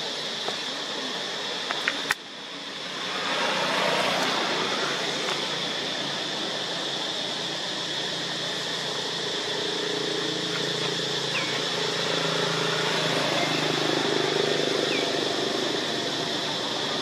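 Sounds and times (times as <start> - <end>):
engine idling: 0.0 - 17.0
steady outdoor hiss: 0.0 - 17.0
faint chirp: 10.4 - 12.0.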